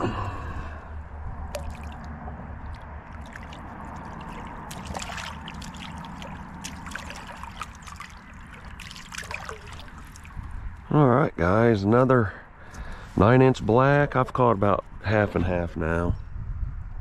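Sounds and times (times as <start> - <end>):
water splashing and trickling: 1.4 - 10.9.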